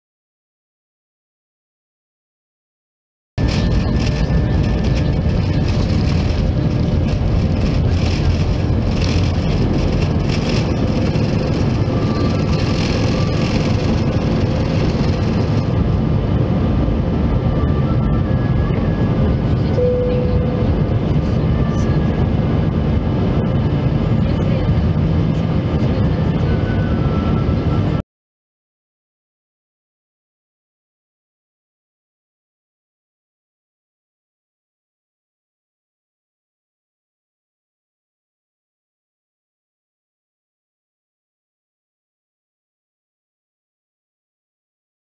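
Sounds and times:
jet engines at takeoff thrust: 0:03.4 - 0:28.0
runway rumble and rattle: 0:03.4 - 0:28.0.

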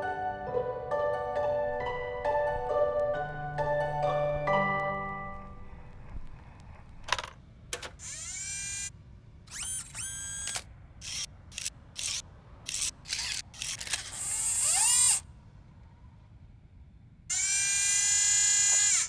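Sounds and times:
small electric motors whirring: 0:08.0 - 0:08.9, 0:09.5 - 0:15.3, 0:17.3 - 0:19.0.

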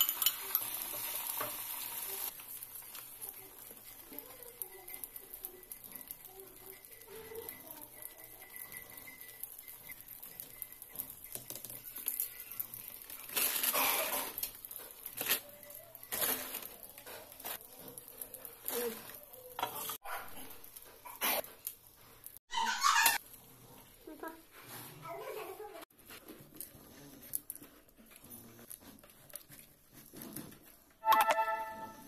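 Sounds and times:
omelette sizzling in a pan: 0:00.0 - 0:22.4.

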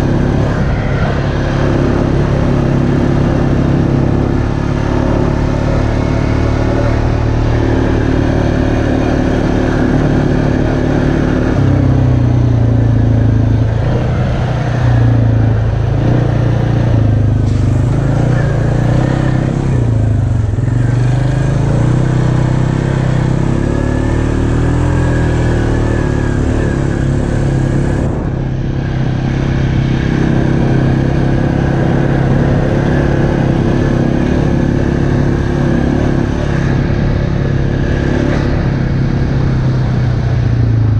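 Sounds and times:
atv engine running: 0:00.0 - 0:40.9.

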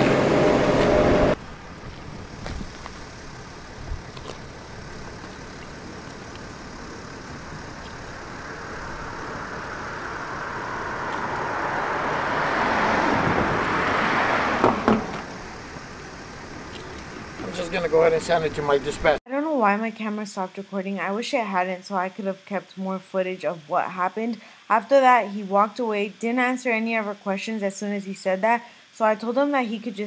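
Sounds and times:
car passing on road: 0:00.0 - 0:19.2
steady engine hum: 0:00.0 - 0:19.2.

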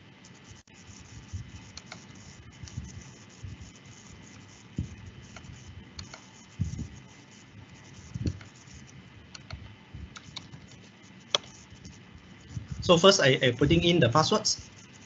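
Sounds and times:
mouse and keyboard clicks: 0:01.7 - 0:02.2, 0:05.3 - 0:06.3, 0:08.2 - 0:08.6, 0:09.3 - 0:12.0.

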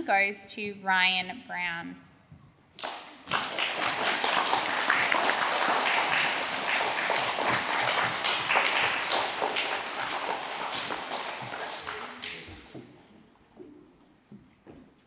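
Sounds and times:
audience applauding: 0:02.8 - 0:12.8.

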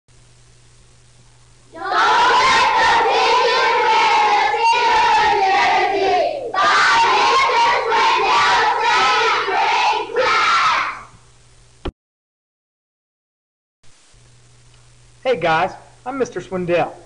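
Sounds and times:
children shouting in chorus: 0:01.8 - 0:11.0.

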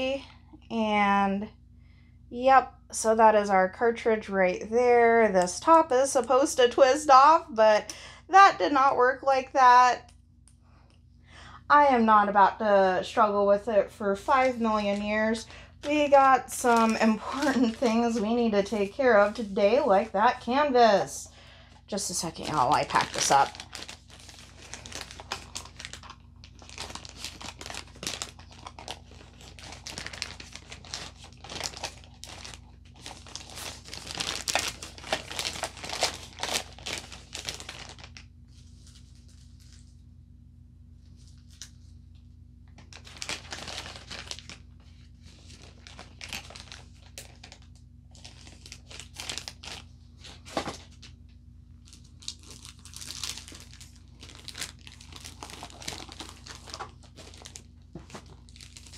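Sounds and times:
plastic packaging crinkling: 0:14.2 - 0:20.5, 0:21.9 - 0:39.9, 0:42.7 - 0:51.2, 0:51.8 - 0:58.9.

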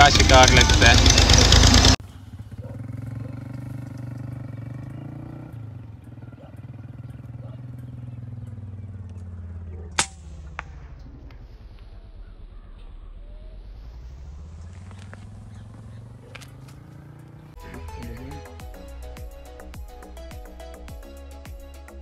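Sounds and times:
motorcycle engine idling: 0:00.0 - 0:22.0
air rifle shot: 0:09.9 - 0:13.6.

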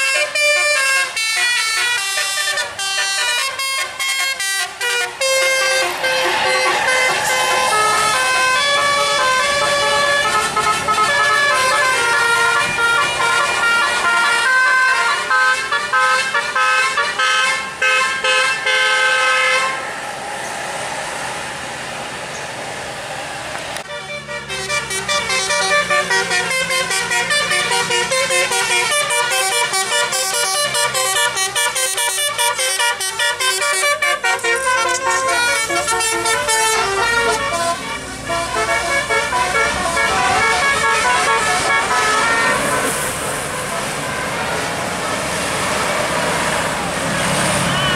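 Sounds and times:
bus horns playing melodic tunes: 0:00.0 - 0:20.0, 0:23.8 - 0:47.9
rushing noise: 0:05.0 - 0:13.2, 0:18.5 - 0:23.9, 0:41.4 - 0:47.9.

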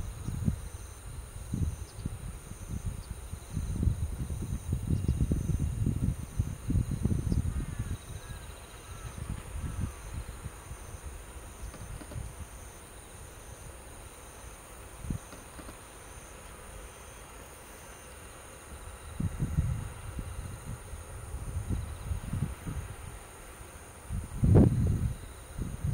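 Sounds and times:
wind rumbling on microphone: 0:00.0 - 0:12.8, 0:15.0 - 0:15.9, 0:19.0 - 0:25.9
insects chirring: 0:00.0 - 0:25.9.

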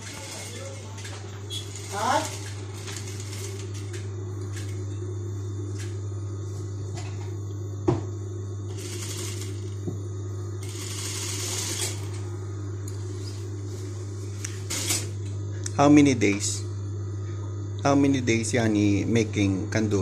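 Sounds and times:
sewing machine motor hum: 0:00.0 - 0:07.2, 0:08.6 - 0:15.2.

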